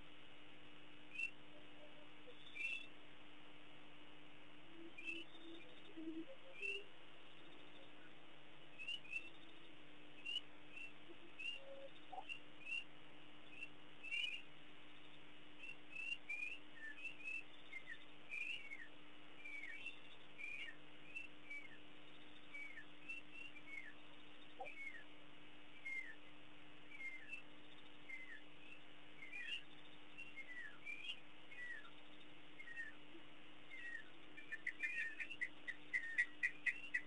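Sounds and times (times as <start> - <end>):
faint low hum: 0.0 - 37.0
high chirping animal calls: 10.2 - 12.9, 15.6 - 25.1, 25.8 - 26.3, 26.9 - 27.5, 28.1 - 33.1, 33.7 - 37.0.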